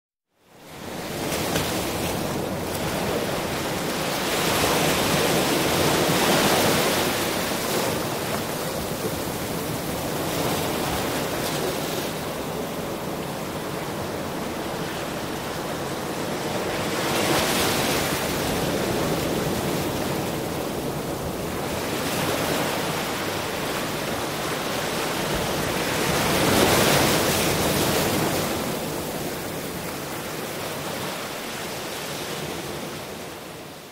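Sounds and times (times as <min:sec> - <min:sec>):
ocean surf on beach: 0:00.4 - 0:33.9.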